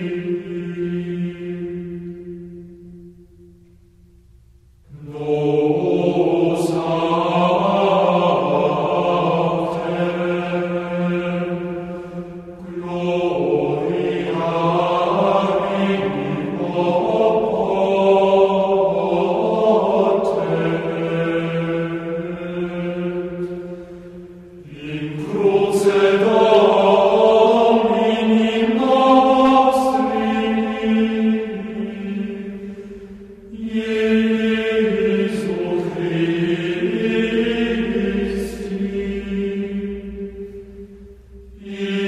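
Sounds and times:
slow chant-like singing: 0.0s - 42.0s.

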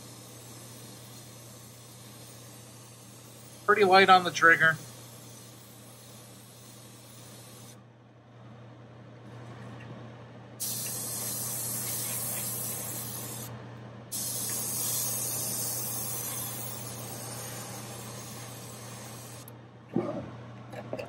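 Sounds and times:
airbrush spraying hiss: 0.0s - 7.8s, 10.6s - 13.5s, 14.1s - 19.5s
steady low hum: 0.0s - 21.0s.

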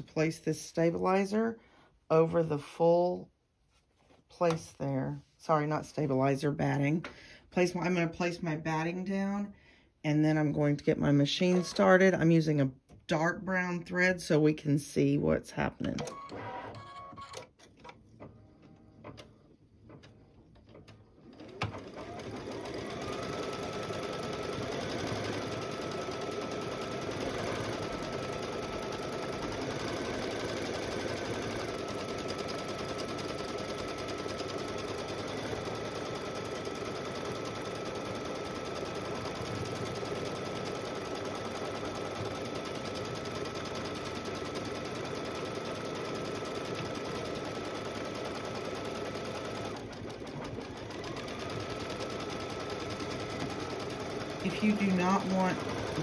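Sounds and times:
embroidery machine stitching: 19.0s - 56.0s.

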